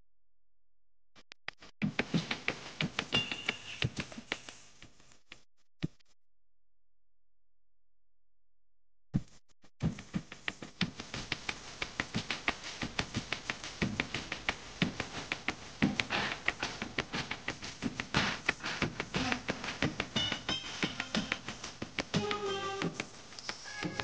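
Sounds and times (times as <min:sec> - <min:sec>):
dance music with fast clicks: 0:01.5 - 0:05.0, 0:09.2 - 0:24.0.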